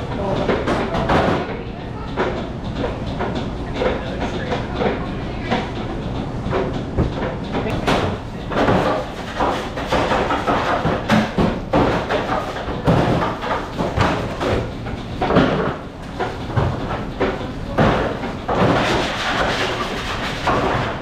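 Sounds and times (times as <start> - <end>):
steady kitchen din: 0.0 - 21.0
kitchen knocks and bangs: 6.5 - 21.0.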